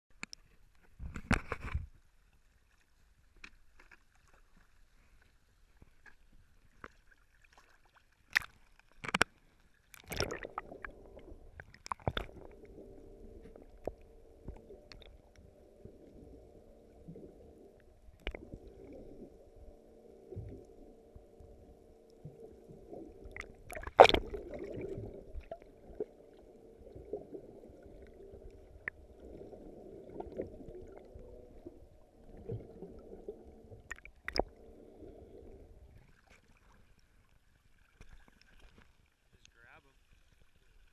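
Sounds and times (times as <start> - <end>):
water sloshing against camera: 0.1 - 40.9
steady low hum: 10.2 - 36.2.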